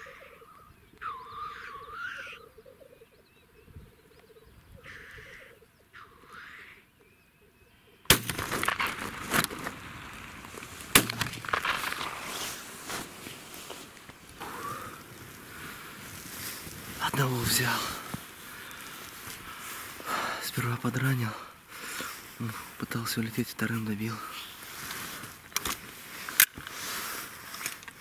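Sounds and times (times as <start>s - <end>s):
grouse hissing chuffs: 4.8s - 6.8s, 8.4s - 22.8s
shotgun shots: 8.1s - 10.0s.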